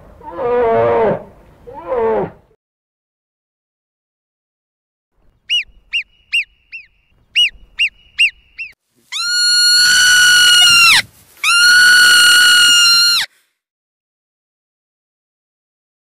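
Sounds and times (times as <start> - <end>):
marmot alarm whistling: 5.4 - 11.0.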